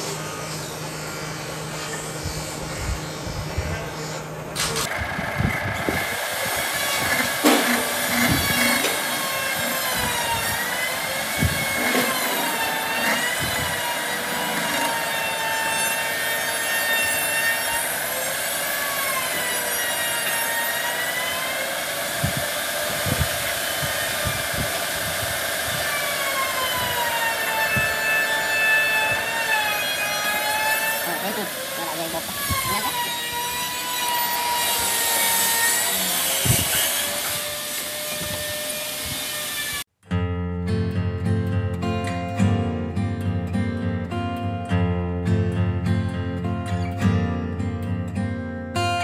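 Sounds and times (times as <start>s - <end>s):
wood rubbing hiss on lathe: 5.8s - 39.8s.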